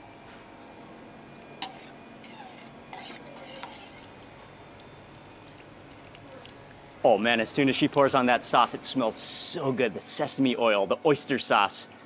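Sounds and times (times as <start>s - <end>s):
liquid trickling: 3.4s - 8.6s.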